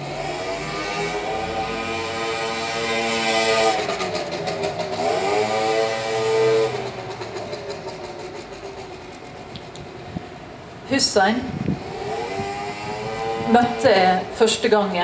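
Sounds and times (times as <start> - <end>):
vehicle engine running: 0.0 - 10.9, 11.5 - 15.0.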